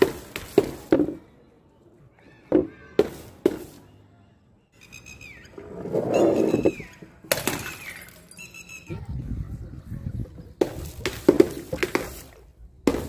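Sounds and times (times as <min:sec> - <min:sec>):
glass bottle smashing on concrete: 0:07.3 - 0:08.4.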